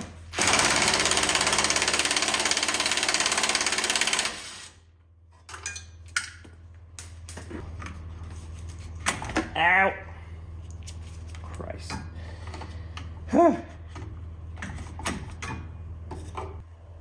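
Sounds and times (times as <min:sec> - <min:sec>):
power tool hammering rattle: 0:00.3 - 0:04.6.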